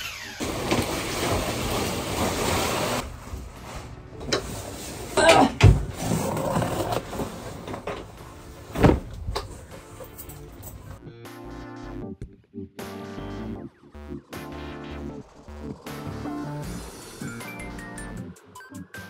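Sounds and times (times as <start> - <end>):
plastic bag rustling: 0.4 - 5.2
cardboard box opened and moved: 5.6 - 7.9.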